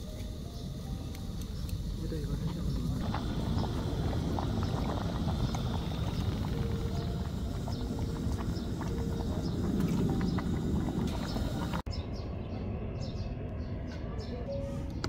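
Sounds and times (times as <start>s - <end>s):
gas stove burning: 0.0s - 11.9s
soup boiling with pops: 1.1s - 11.9s.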